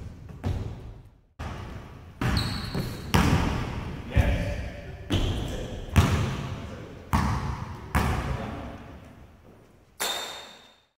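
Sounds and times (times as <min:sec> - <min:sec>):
basketball bouncing on wooden floor: 0:00.0 - 0:03.8, 0:07.1 - 0:08.3.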